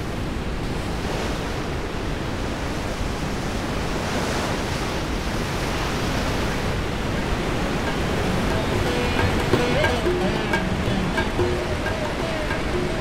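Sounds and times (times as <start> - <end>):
whitewater rapids roaring: 3.3 - 13.0.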